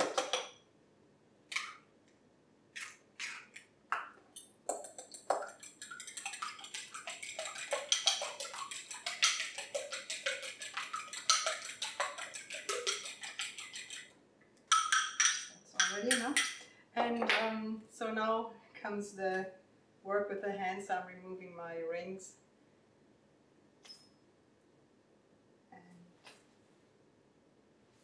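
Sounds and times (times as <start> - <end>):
fork beating eggs in glass bowl: 4.4 - 16.6.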